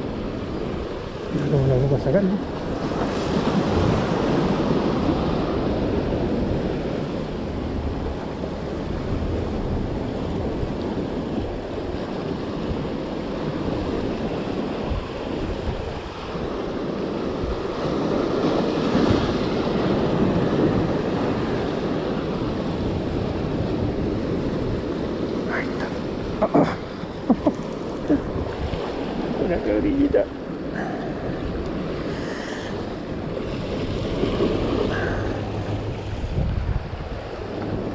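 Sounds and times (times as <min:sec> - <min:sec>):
wind on microphone: 0:00.0 - 0:37.9
surf breaking over rocks: 0:13.5 - 0:37.9.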